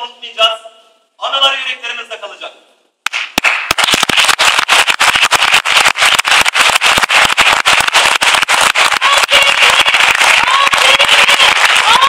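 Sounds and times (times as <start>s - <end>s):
crowd applauding: 3.4s - 12.0s.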